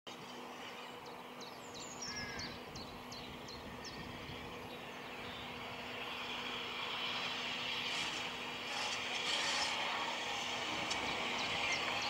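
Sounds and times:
bird chirping: 0.1s - 5.7s
steady low hum: 0.1s - 12.0s.

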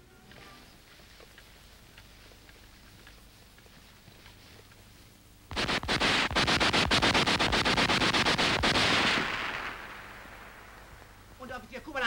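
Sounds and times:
submachine gun automatic burst: 5.5s - 10.6s
gunshot echo: 5.5s - 11.2s.

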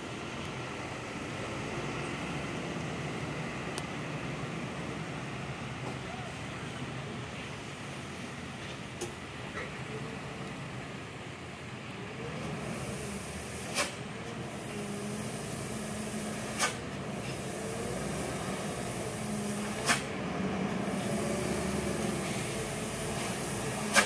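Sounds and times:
diesel truck engine running: 0.0s - 24.0s
air brake hisses: 12.6s - 20.1s, 20.8s - 24.0s.

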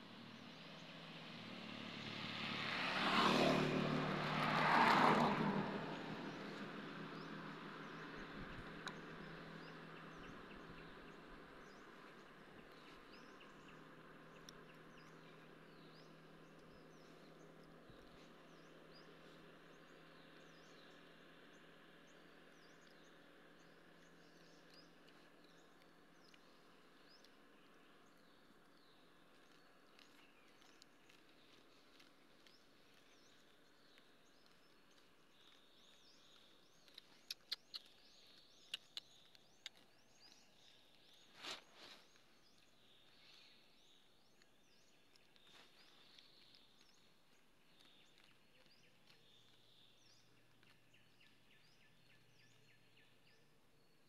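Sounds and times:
short rustle: 41.3s - 42.2s.

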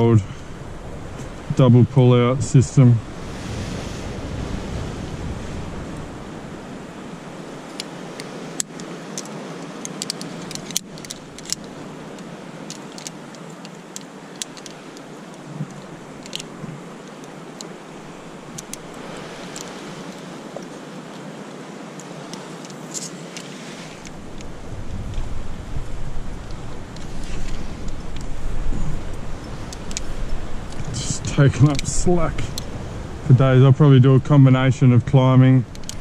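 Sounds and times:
surf: 0.0s - 10.8s
wind: 0.0s - 36.0s
metal climbing hardware clinking: 7.6s - 17.8s.

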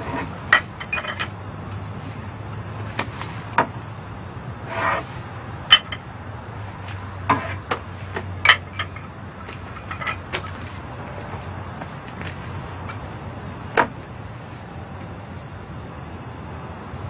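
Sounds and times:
light clinks and knocks: 0.5s - 1.9s, 5.7s - 6.1s, 7.3s - 13.1s.

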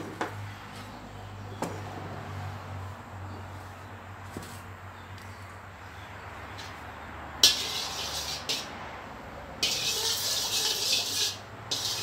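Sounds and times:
spatula scraping wok: 7.4s - 8.8s, 9.6s - 12.0s
hot fat hissing: 9.6s - 12.0s.

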